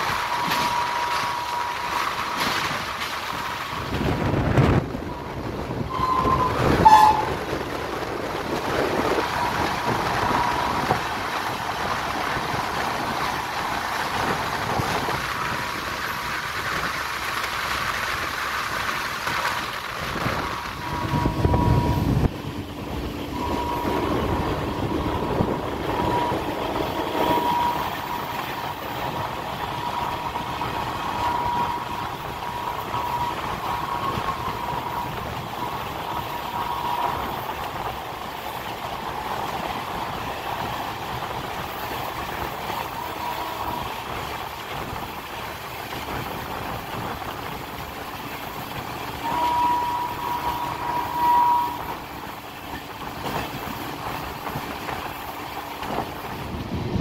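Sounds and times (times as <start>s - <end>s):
train rolling noise: 0.0s - 57.0s
thin high tone: 23.3s - 26.5s.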